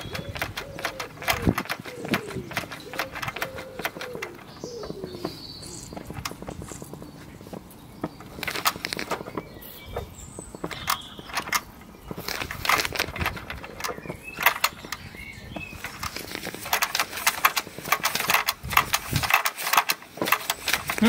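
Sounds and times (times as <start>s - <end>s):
model steam engine clicking: 0.0s - 4.8s, 10.7s - 21.0s.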